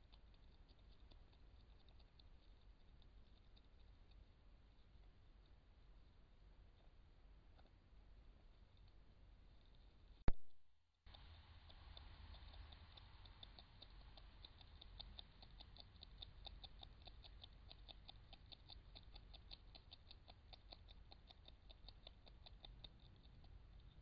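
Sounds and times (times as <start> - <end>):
beaver chewing bark: 11.1 - 24.0.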